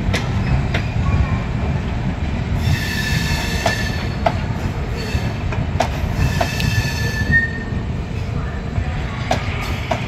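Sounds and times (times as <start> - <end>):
wheels clacking over rail joints: 0.0 - 1.3, 3.4 - 6.8, 9.2 - 10.0
train rolling past rumbling: 0.0 - 10.0.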